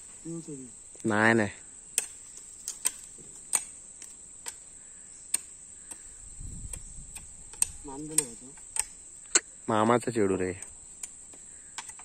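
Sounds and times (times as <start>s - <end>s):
crickets chirring: 0.0s - 12.0s
sharp clicks: 5.3s - 9.5s.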